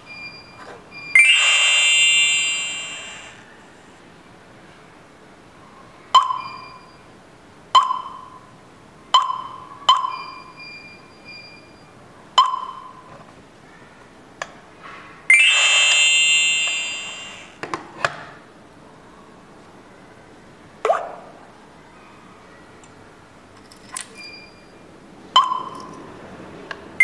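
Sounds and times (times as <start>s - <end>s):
short ringing beeps: 1.1s - 3.4s, 15.3s - 17.6s
multi-tone chime: 1.2s - 3.4s, 15.3s - 17.5s.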